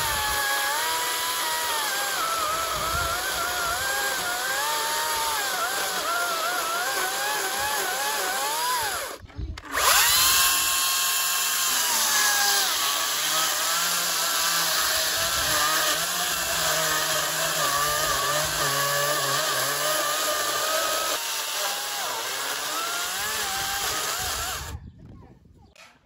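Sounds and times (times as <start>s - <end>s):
electric chainsaw cutting wood: 0.0s - 24.8s.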